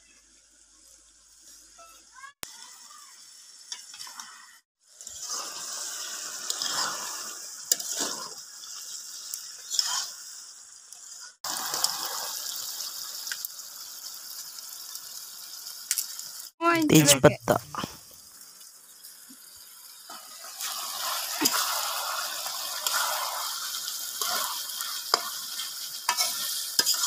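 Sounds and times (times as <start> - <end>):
curry sizzling in a pan: 0.0 - 16.6, 17.6 - 27.0
spatula scraping a pan: 5.1 - 10.2, 20.1 - 27.0.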